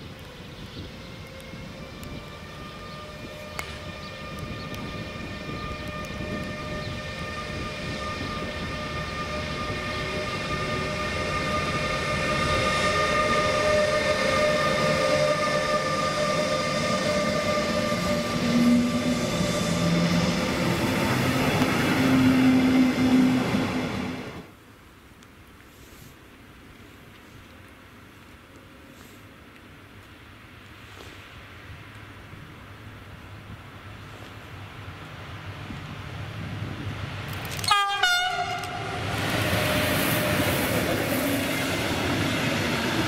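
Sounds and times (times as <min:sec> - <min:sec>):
train coaches rolling: 0:00.0 - 0:24.5, 0:36.0 - 0:43.0
electric locomotive whine: 0:00.0 - 0:24.6, 0:32.6 - 0:43.0.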